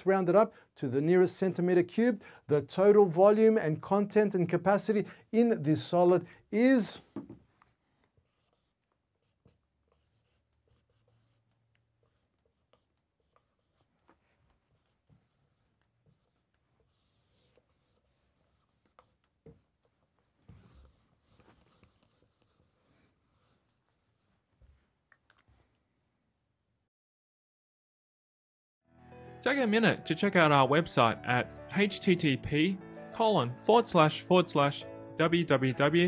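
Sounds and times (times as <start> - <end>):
marker writing on whiteboard: 8.0 - 24.4.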